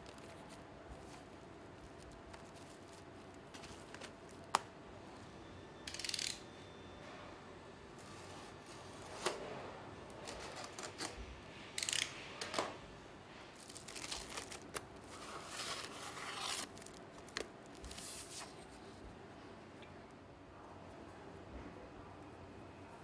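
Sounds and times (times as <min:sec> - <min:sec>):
packaging rustling and tearing: 0:00.0 - 0:04.6, 0:10.1 - 0:12.2, 0:13.5 - 0:18.8.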